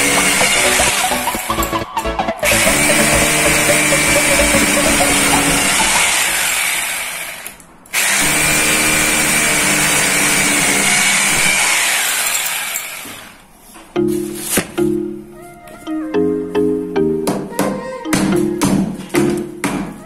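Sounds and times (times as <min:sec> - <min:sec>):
electric drill boring into concrete: 0:02.5 - 0:13.3.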